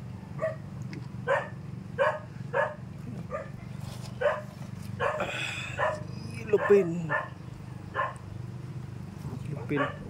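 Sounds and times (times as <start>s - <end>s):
steady low hum: 0.0s - 10.0s
dog barking: 0.4s - 0.6s, 1.2s - 3.6s, 4.2s - 8.2s, 9.5s - 10.0s.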